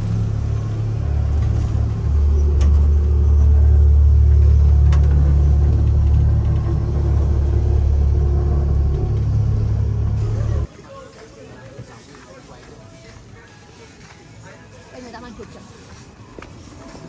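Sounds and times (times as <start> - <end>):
vehicle engine rumbling: 0.0 - 10.7.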